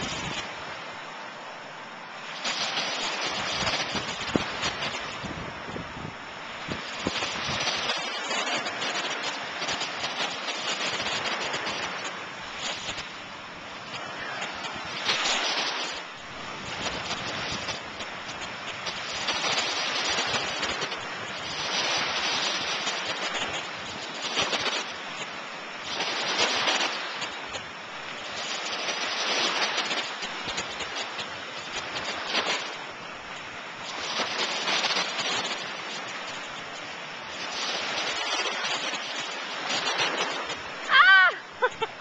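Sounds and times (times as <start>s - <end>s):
small waves washing on beach: 0.0s - 42.0s.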